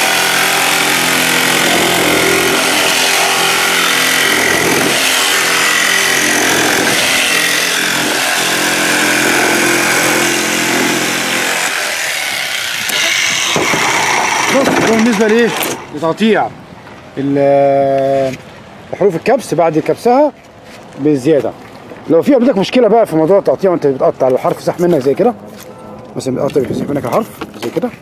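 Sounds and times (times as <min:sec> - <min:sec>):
electric jigsaw cutting plastic: 0:00.0 - 0:15.9.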